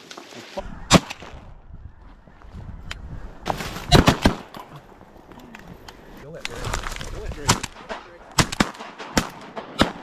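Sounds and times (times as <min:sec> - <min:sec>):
shotgun blasts: 0:07.5 - 0:10.0.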